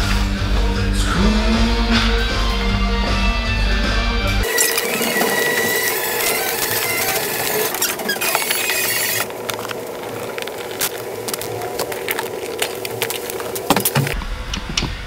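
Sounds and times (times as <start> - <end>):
steady hum: 4.4 - 15.0.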